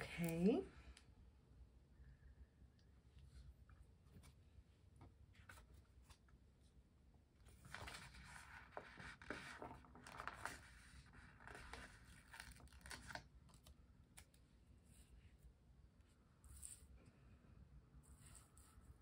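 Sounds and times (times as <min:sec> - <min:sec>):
paper pages rustling: 0:07.4 - 0:15.2.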